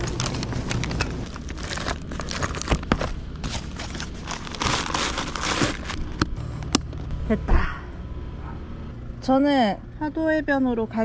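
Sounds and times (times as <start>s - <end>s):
plastic packs crinkling and rustling: 0.0s - 6.3s
items and bag clicking and knocking: 0.0s - 6.9s.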